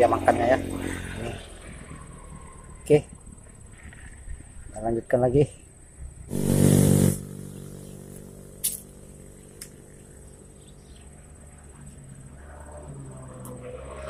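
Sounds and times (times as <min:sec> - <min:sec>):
low engine hum: 0:06.3 - 0:14.0.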